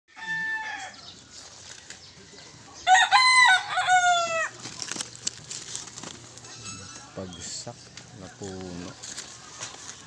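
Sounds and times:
rooster crowing: 0.1s - 1.1s, 2.3s - 4.6s.

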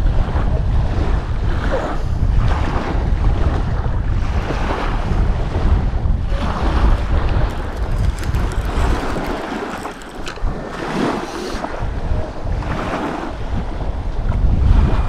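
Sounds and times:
wind buffeting microphone: 0.0s - 15.0s
sea washing: 7.0s - 11.8s.

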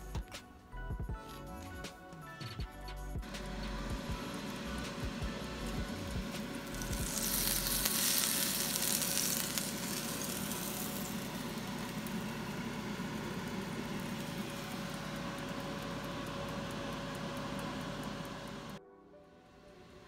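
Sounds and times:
faint steady hum: 3.0s - 20.0s
batter sizzling in oil: 6.1s - 18.7s.

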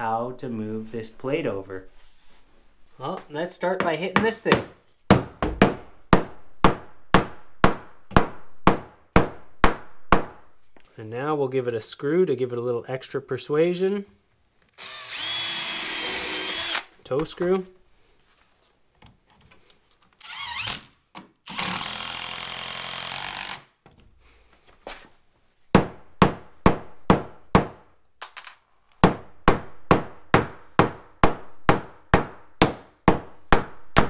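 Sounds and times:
power drill driving screw: 14.8s - 16.9s, 20.2s - 23.7s.

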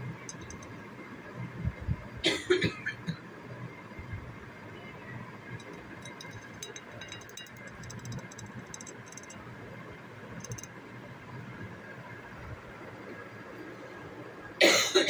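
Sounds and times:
low steady rumble: 0.0s - 2.8s
birds pecking food: 5.6s - 9.4s.

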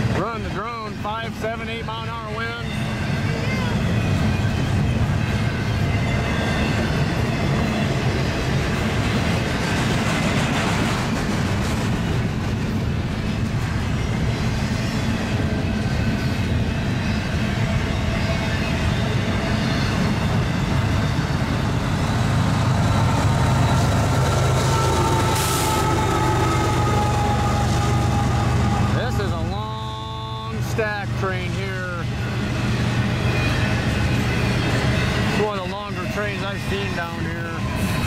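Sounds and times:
freight trains rumbling past: 0.0s - 38.0s.

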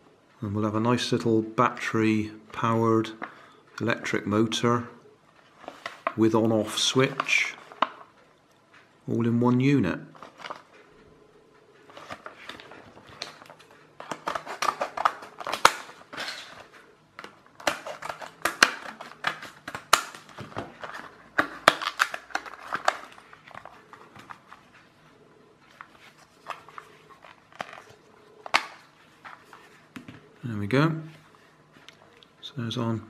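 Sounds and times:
stiff plastic crackling: 11.8s - 25.0s, 25.6s - 29.9s.

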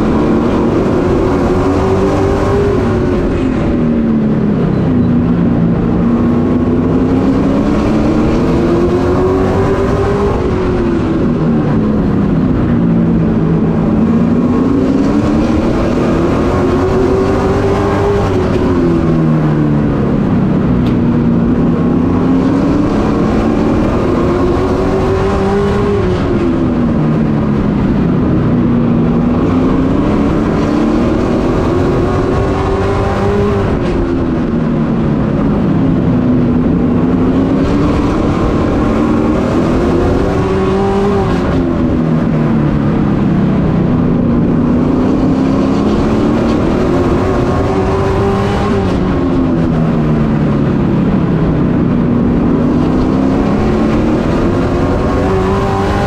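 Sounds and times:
race truck engine running hard: 0.0s - 56.0s.

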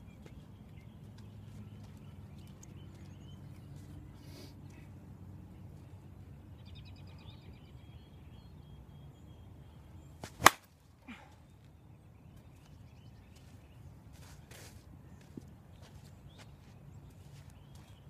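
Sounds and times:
bat cracking a softball: 10.2s - 10.7s.

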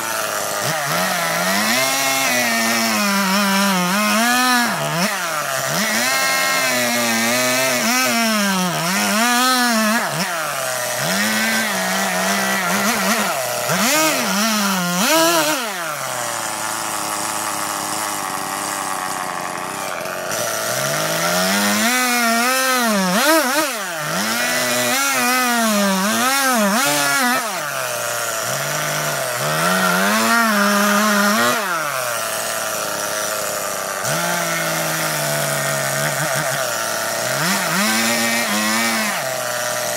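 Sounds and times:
chainsaw cutting wood: 0.0s - 39.9s.

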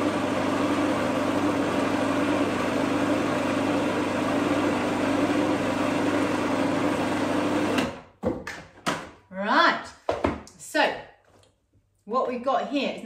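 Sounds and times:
food processor motor running: 0.0s - 8.1s.

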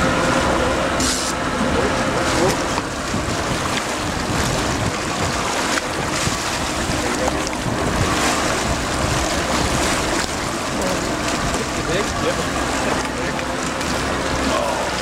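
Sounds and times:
waves against boat hull: 0.0s - 15.0s
wind buffeting microphone: 1.4s - 15.0s.

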